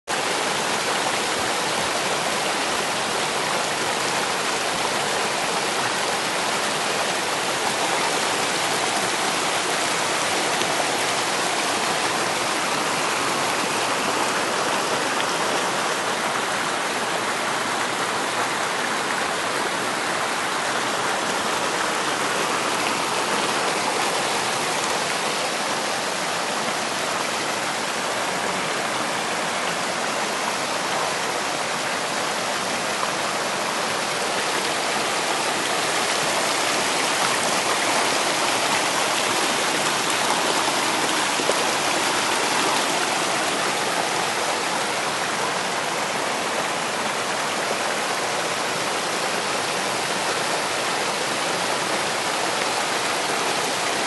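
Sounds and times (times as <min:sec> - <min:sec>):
stream rushing over boulders: 0:00.0 - 0:54.0.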